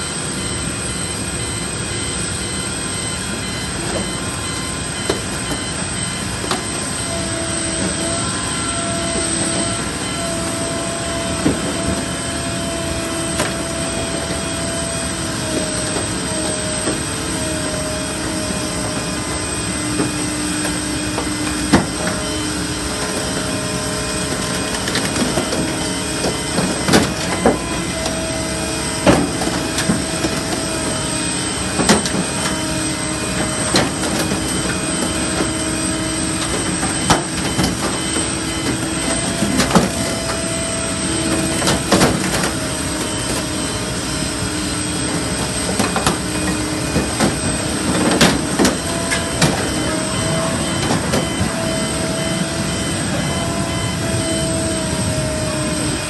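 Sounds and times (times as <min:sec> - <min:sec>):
machinery running: 0:00.0 - 0:56.0.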